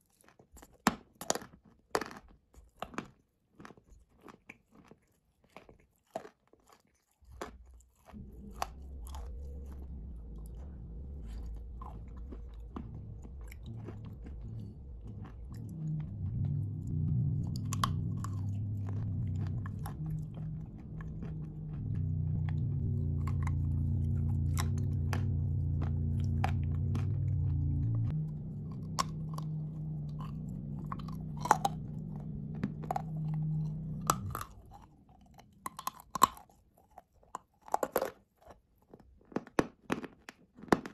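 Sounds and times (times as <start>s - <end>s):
clay crunching while chewed: 0.0s - 40.9s
low hum: 8.2s - 36.0s.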